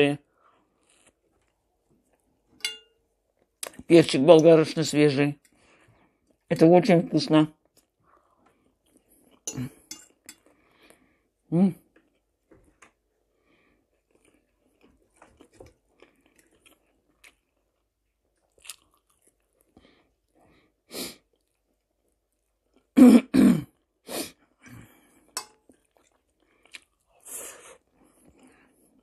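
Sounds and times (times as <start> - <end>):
close chewing: 13.8 - 20.4, 25.2 - 27.2
woman coughing: 23.0 - 23.7.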